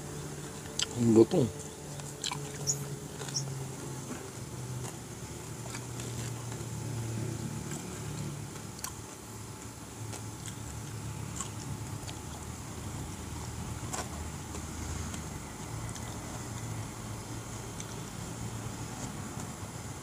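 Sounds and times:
low wavering hum: 0.0 - 20.0
chewing: 0.6 - 1.0, 1.6 - 6.9, 7.6 - 16.8.

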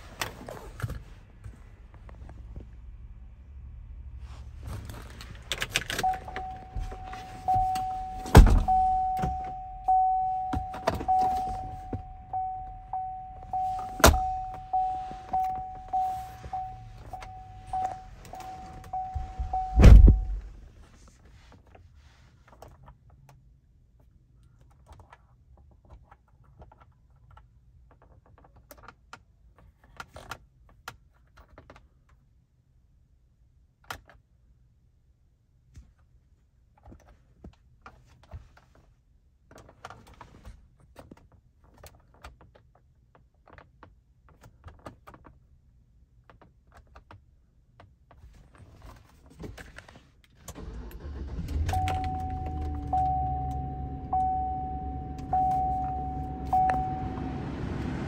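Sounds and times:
warning chime pinging: 6.0 - 20.5, 51.7 - 58.0
heavy thumps: 16.5 - 20.7.

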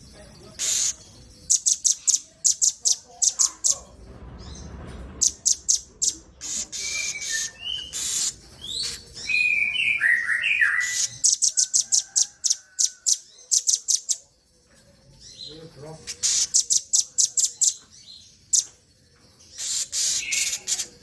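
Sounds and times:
songbirds chipping and trilling: 0.0 - 21.0
short whistled bird calls: 6.0 - 11.3.

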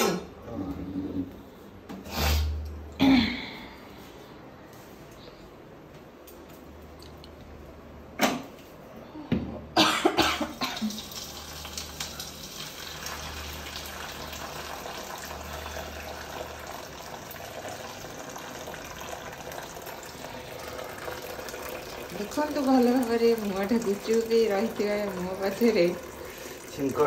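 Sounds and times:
person coughing: 0.0 - 0.4, 3.0 - 3.6, 9.8 - 10.9
person sneezing: 2.0 - 3.6
sizzling in a pan: 10.8 - 18.9.

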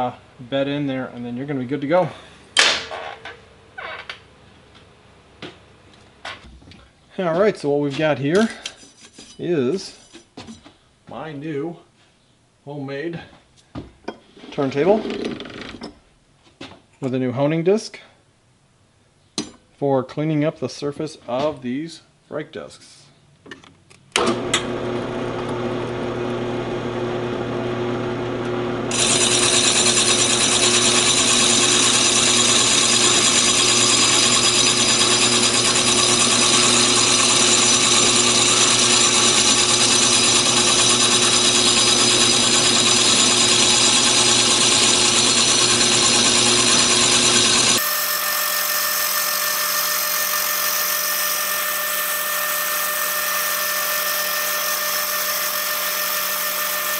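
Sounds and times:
motor hum: 24.3 - 56.9
brush grinding on brake disc: 28.9 - 56.9
thin high whine: 33.2 - 56.9.

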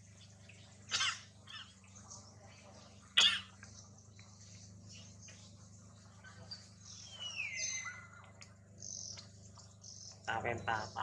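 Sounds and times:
low steady hum: 0.0 - 11.0
sharp animal calls: 6.2 - 8.4.

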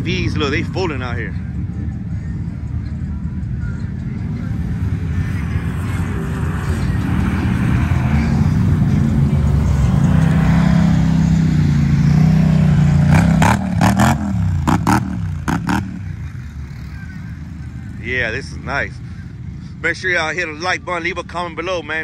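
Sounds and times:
vehicle engine revving: 4.8 - 19.7.

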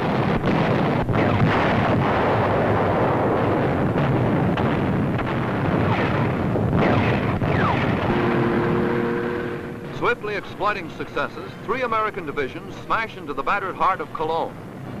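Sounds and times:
artillery fire and explosions: 0.0 - 15.0
continuous loud rumble: 0.0 - 15.0.

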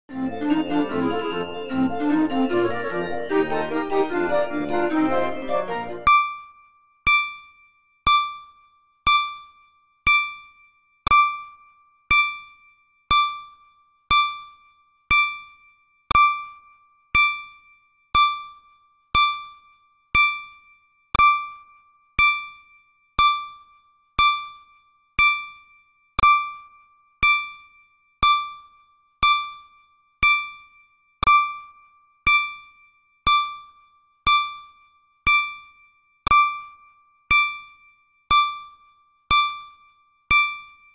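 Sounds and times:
electronic timer dings: 0.1 - 6.5, 7.1 - 14.5, 15.1 - 16.6, 18.2 - 18.6, 21.2 - 21.6, 22.2 - 23.6, 24.2 - 25.6, 26.2 - 31.7, 33.3 - 35.7, 36.3 - 40.9.

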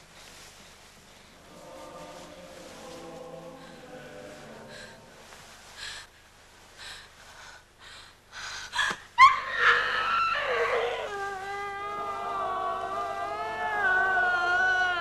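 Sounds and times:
anguished cry and wail: 9.2 - 15.0.

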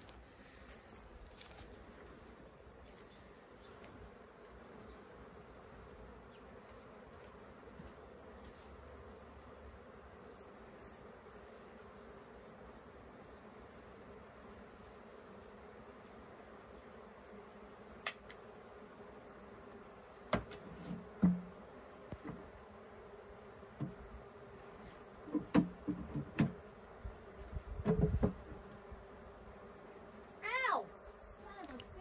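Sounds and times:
bees buzzing: 0.0 - 32.0
wooden knocks and clunks: 20.3 - 21.5, 25.3 - 26.6, 27.8 - 28.4.

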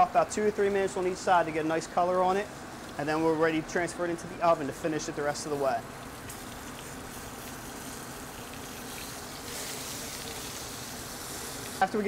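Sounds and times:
chicken sizzling in skillet: 6.0 - 12.0.

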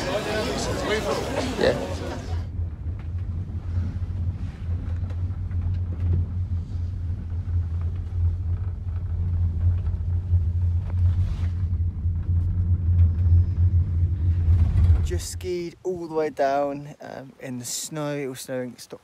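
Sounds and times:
chairlift rumble: 0.0 - 16.8
wind on microphone: 2.1 - 16.0.

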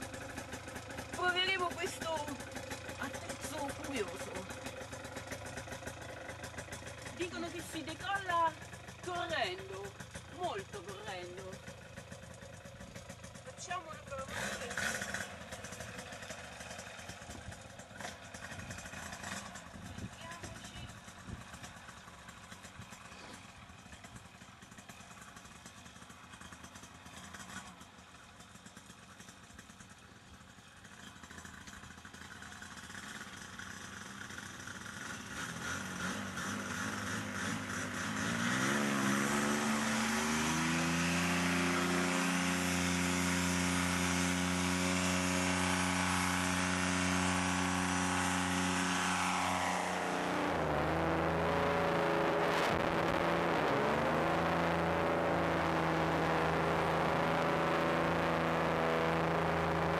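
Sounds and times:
paramotor engine revving: 0.0 - 21.9, 33.3 - 59.9.

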